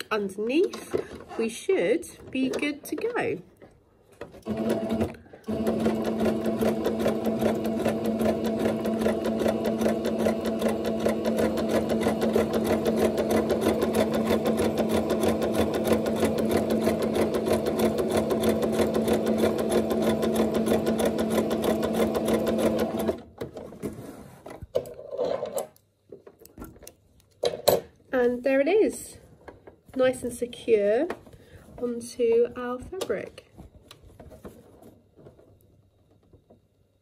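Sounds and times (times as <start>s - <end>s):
sewing machine stitching: 4.4s - 23.2s.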